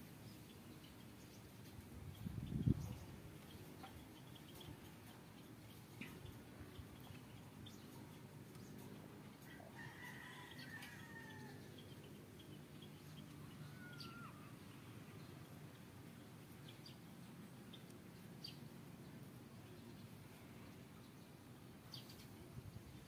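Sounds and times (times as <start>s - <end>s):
low steady background noise: 0.0s - 23.0s
rooster crowing: 9.4s - 11.7s, 13.6s - 14.6s
faint bird chirps: 9.4s - 15.7s
short gliding bird call: 13.6s - 14.6s.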